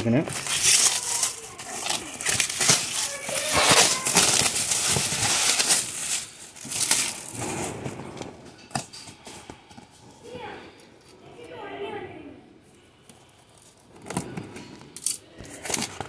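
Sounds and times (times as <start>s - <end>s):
plastic wrap crinkling and tearing: 0.0s - 10.4s.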